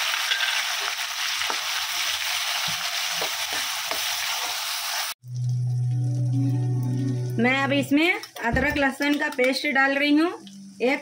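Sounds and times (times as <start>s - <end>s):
onion sizzling in hot oil: 0.0s - 6.3s.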